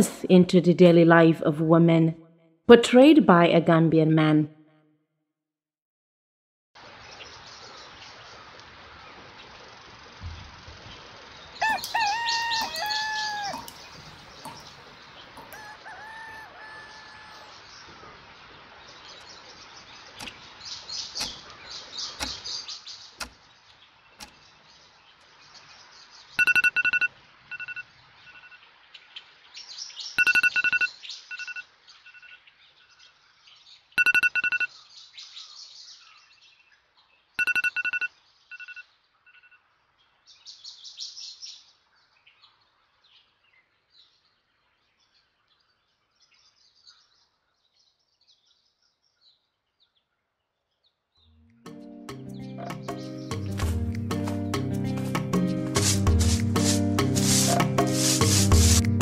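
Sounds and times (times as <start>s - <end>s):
small birds chirping: 6.9s - 26.6s, 27.2s - 39.2s, 39.9s - 59.0s
rooster crowing: 11.6s - 14.0s, 15.4s - 17.6s
electronic alarm beeping: 26.4s - 28.6s, 30.2s - 32.4s, 34.0s - 34.7s, 37.4s - 39.6s.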